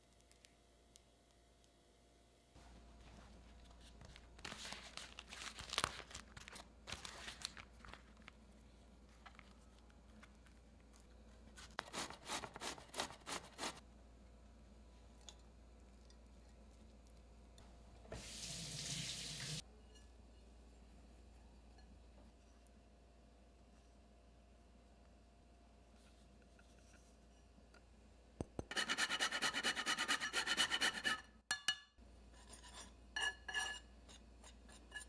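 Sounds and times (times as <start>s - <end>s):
rustling and crinkling: 2.6s - 11.8s.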